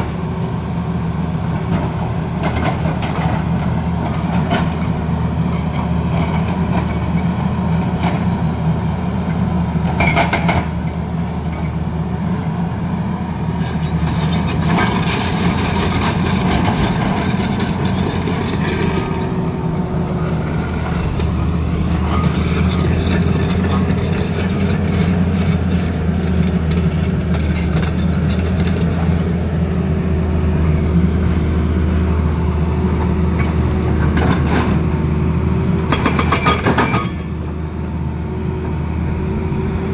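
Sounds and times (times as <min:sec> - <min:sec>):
diesel engine running: 0:00.0 - 0:39.9
hydraulic rock breaker hammering: 0:35.8 - 0:37.3.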